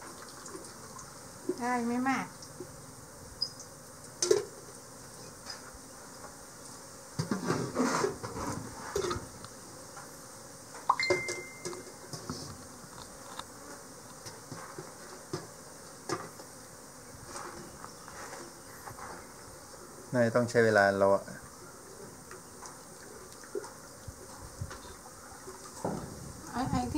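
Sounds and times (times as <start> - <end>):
pots and bowl knocking and clanking: 10.9 - 11.8
sharp metallic clang: 10.9 - 11.8.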